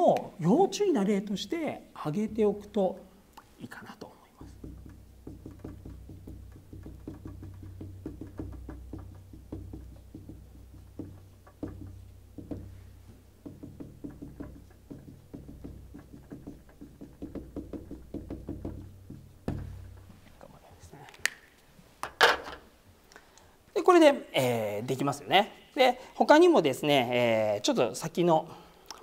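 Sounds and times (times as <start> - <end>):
marker pen writing on whiteboard: 4.3 - 19.6.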